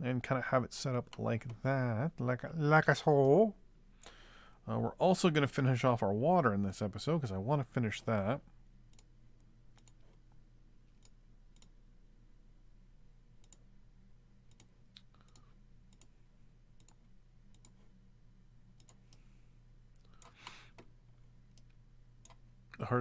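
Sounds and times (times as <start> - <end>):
low electrical hum: 0.0 - 23.0
computer mouse clicks: 9.7 - 10.2, 11.0 - 11.8, 13.4 - 13.6, 14.5 - 16.1, 16.8 - 17.8, 18.8 - 19.2.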